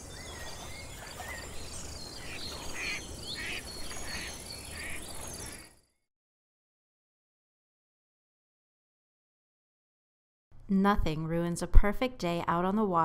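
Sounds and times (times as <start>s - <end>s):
bird chirps: 0.0s - 6.0s.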